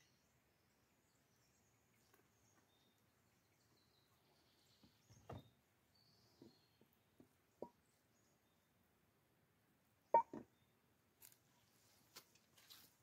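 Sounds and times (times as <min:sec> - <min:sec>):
faint bird chirps: 0:00.0 - 0:08.8.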